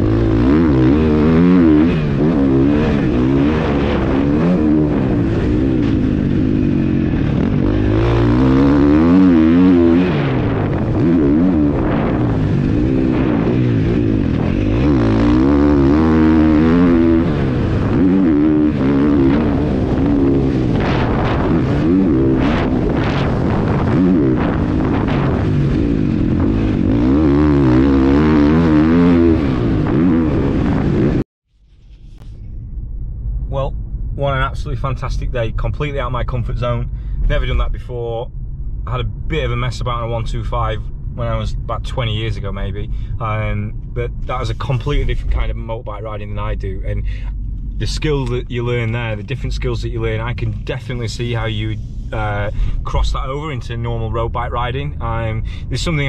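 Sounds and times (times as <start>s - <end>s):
motorcycle engine revving: 0.0s - 31.2s.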